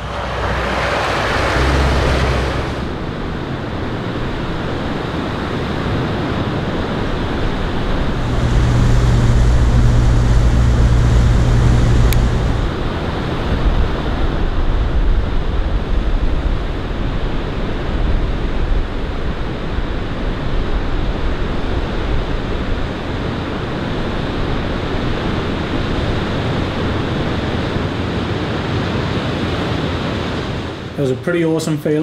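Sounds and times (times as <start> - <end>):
low rumble: 0.0 - 5.0, 7.2 - 19.0
water rushing over causeway: 0.0 - 31.2.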